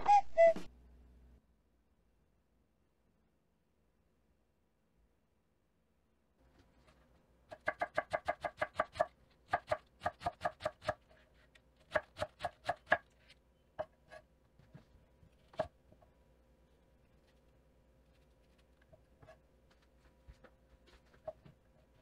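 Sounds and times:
knife chopping on wooden board: 0:11.9 - 0:13.0.

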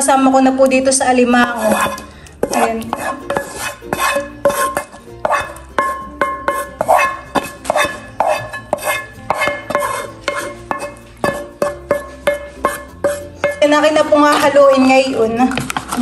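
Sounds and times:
spoon scraping sauce from a pan: 0:01.5 - 0:13.6
plucked string music with beat: 0:01.7 - 0:16.0.

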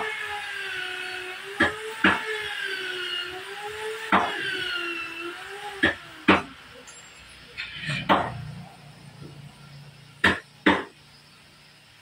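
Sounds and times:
wooden boards knocking: 0:10.2 - 0:10.9.

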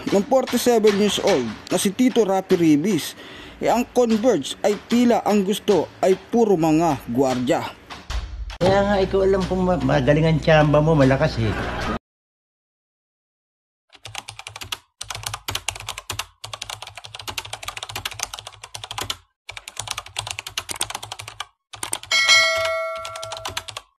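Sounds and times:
keyboard typing clicks: 0:14.0 - 0:23.9
bright ringing ding: 0:22.1 - 0:23.6.

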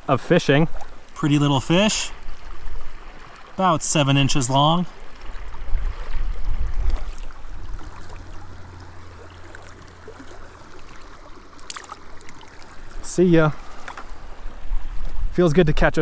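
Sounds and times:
shallow creek rushing: 0:00.0 - 0:16.0
wind buffeting microphone: 0:05.3 - 0:09.2, 0:13.5 - 0:16.0.

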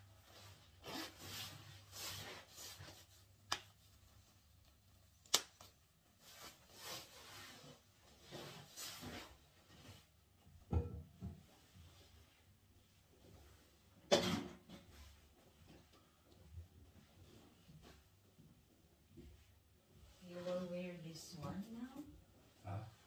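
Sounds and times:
clothing and gear rustling: 0:00.0 - 0:04.7, 0:06.0 - 0:10.2.

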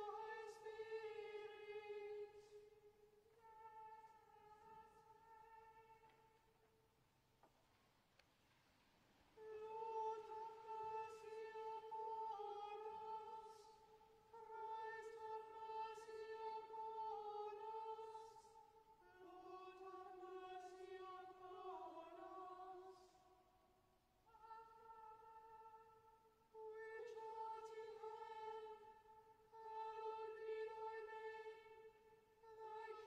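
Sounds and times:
choir chanting: 0:00.0 - 0:02.8, 0:09.4 - 0:23.2.

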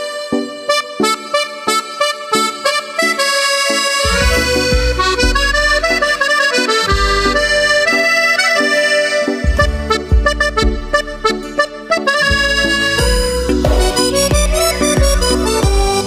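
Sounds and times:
instrumental melody: 0:00.0 - 0:16.0
deep bass: 0:04.0 - 0:07.9, 0:09.4 - 0:16.0.

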